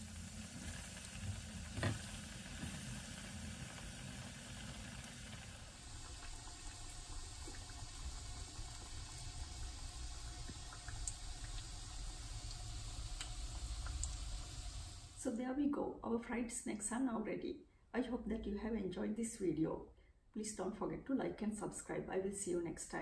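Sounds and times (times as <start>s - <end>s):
hot oil sizzling and bubbling: 0.0s - 15.2s.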